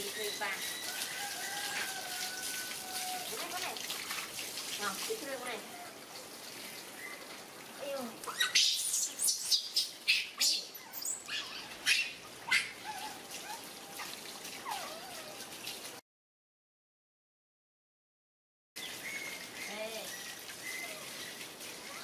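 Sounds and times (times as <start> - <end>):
hose water splashing: 0.0 - 16.0, 18.8 - 22.0
baby monkeys squealing: 8.2 - 13.2.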